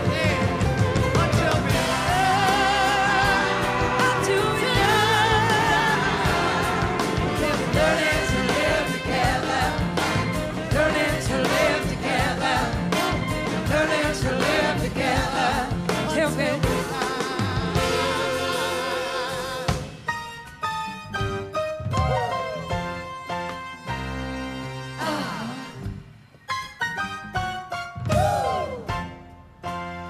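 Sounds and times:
person singing with vibrato: 0.0s - 9.8s, 15.2s - 19.9s
steady drum beat: 0.0s - 18.8s
blues-rock band playing: 0.0s - 20.6s, 21.2s - 24.9s.

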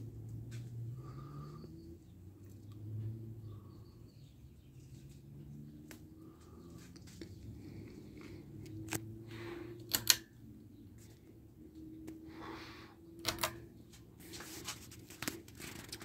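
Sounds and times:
pull-chain switch clicks: 9.8s - 10.3s.

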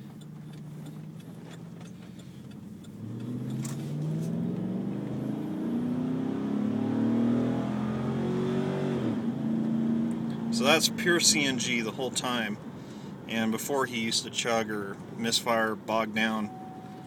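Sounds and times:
truck engine revving: 2.6s - 11.9s.

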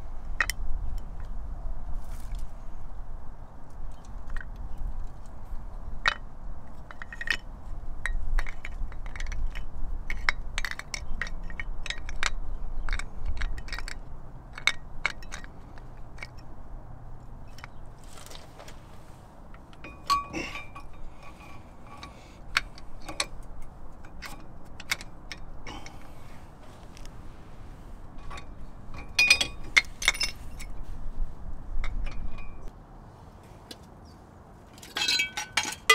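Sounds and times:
metal clicks and clinks: 6.8s - 16.5s, 19.5s - 26.0s, 28.2s - 30.8s, 34.7s - 35.9s.

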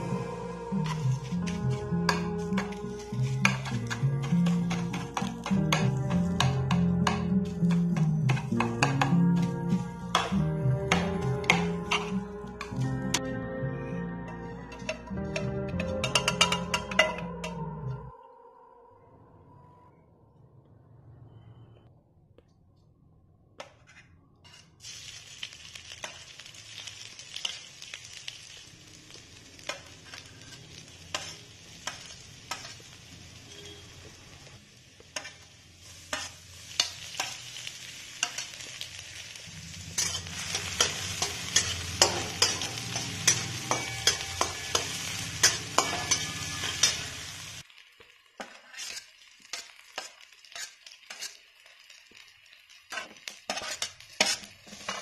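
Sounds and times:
food sizzling in hot oil: 0.0s - 13.2s, 24.5s - 55.0s
metal utensil tapping a pan: 3.4s - 9.2s, 10.1s - 12.8s, 14.7s - 17.6s, 40.0s - 47.2s.

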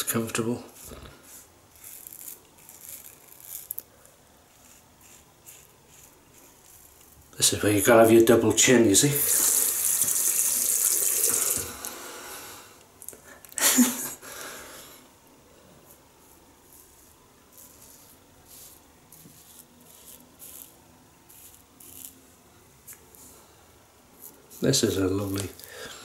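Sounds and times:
razor scraping stubble: 0.7s - 8.0s, 15.9s - 22.2s, 24.2s - 26.0s
running tap water: 9.2s - 11.8s.

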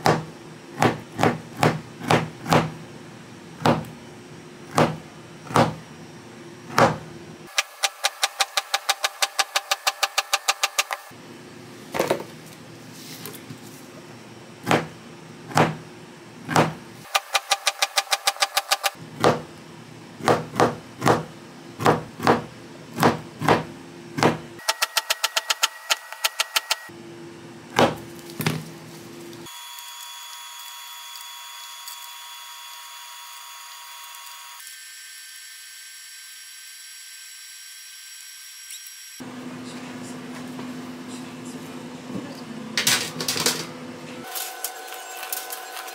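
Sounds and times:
knife chopping dough: 0.0s - 2.8s, 3.6s - 4.0s, 4.7s - 5.8s, 6.7s - 11.0s, 14.6s - 15.9s, 16.5s - 19.5s, 20.2s - 25.6s, 27.8s - 28.6s
machine whine: 24.6s - 27.1s, 29.2s - 39.4s.

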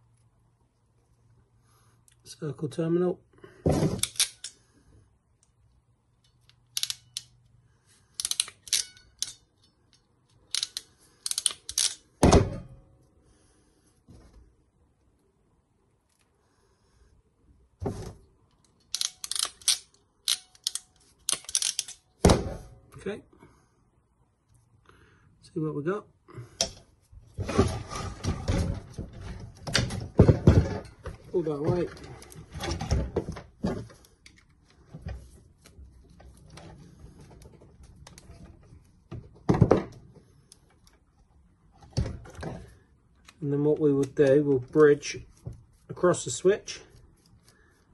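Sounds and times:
crimping pliers ratchet clicks: 6.2s - 7.4s, 8.2s - 9.4s, 10.4s - 12.0s, 18.8s - 22.1s.

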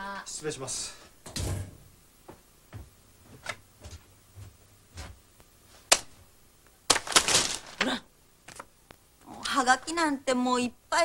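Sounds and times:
soft footsteps indoors: 1.7s - 6.3s.

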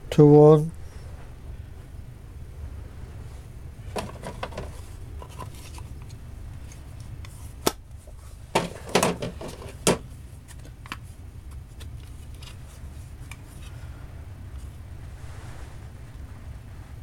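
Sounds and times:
steady low hum: 0.0s - 17.0s
micrometers knocking and clattering: 3.9s - 5.4s, 8.5s - 10.1s.

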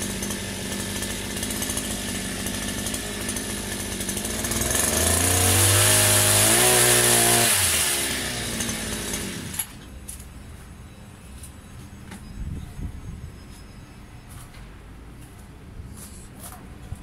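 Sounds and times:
small engine idling and revving: 0.0s - 9.8s.

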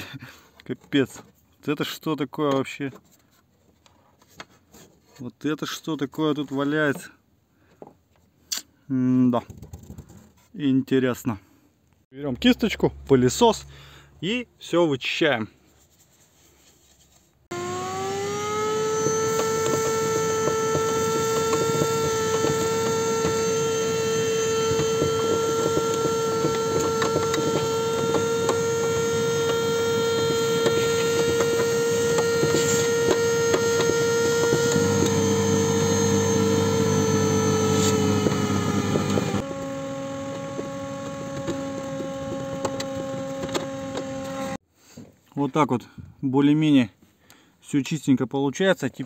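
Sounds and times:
vacuum cleaner whine: 17.5s - 44.6s.

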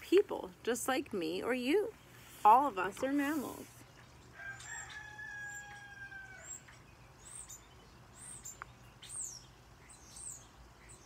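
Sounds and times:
small songbird chirping faintly: 0.0s - 11.0s.

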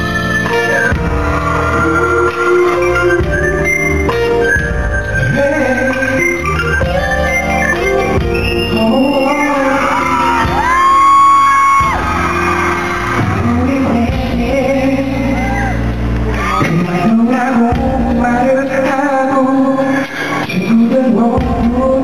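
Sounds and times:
live concert music with singing: 0.0s - 22.0s
fans screaming and whooping: 0.6s - 3.6s, 8.4s - 14.0s, 15.0s - 17.6s.

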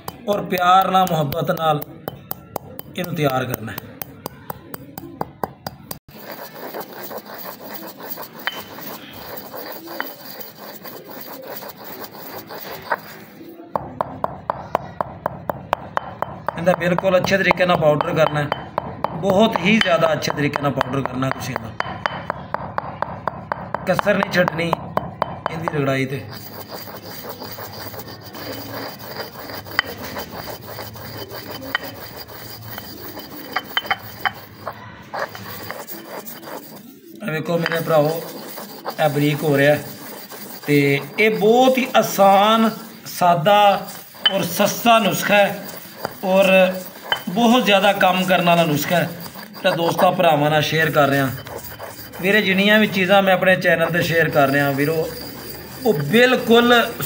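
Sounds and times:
pestle clicking against bowl: 0.0s - 6.0s, 13.8s - 28.0s, 46.8s - 47.4s
stone pestle grinding seeds: 0.0s - 57.0s.

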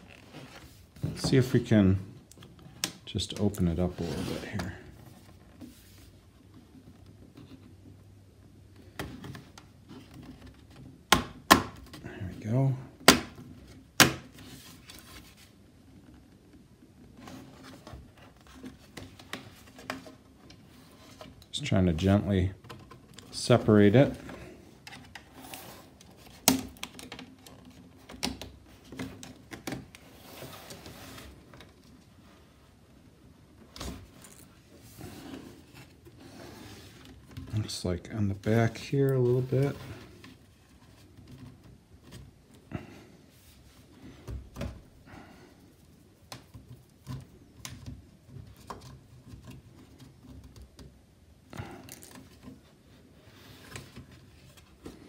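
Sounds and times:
faint scraping: 3.6s - 6.3s
plastic cover clicking and scraping: 22.6s - 30.0s.

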